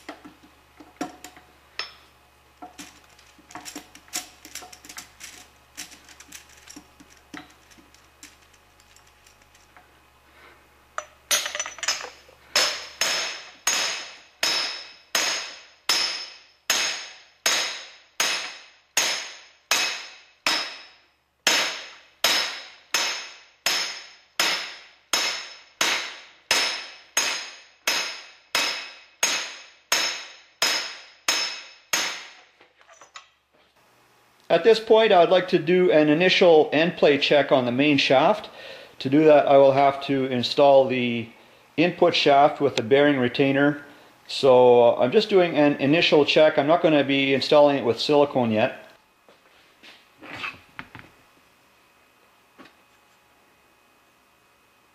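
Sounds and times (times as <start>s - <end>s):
hammer striking metal pipe: 1.8s - 2.1s, 12.6s - 32.4s.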